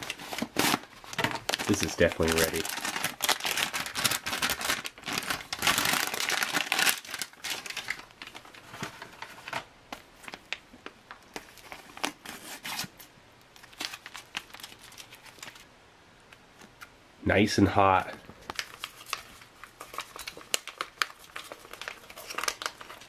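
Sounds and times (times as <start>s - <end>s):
foil pouch crackling: 0.0s - 9.3s, 13.6s - 15.7s, 18.4s - 23.0s
plastic bag crinkling: 0.0s - 12.2s, 13.6s - 15.7s, 18.4s - 23.0s.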